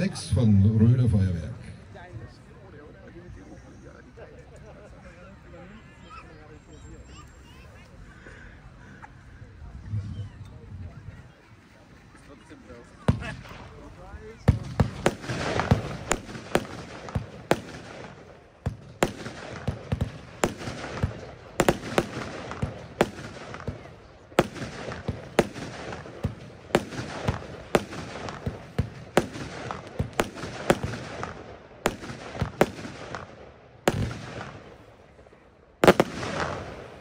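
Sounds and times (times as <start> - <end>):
firework bangs and pops: 13.1 - 37.0.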